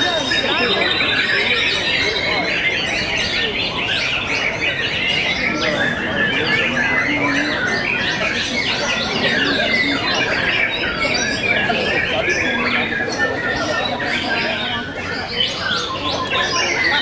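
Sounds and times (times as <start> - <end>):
birds singing: 0.0 - 17.0.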